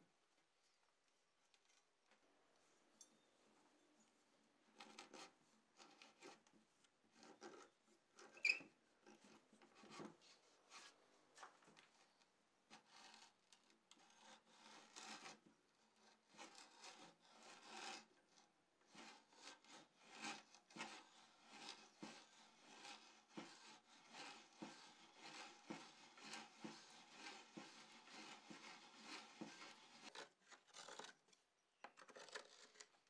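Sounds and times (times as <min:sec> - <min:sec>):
hand drill rasping into wood: 0:14.2 - 0:15.4, 0:16.0 - 0:18.1, 0:18.9 - 0:30.2.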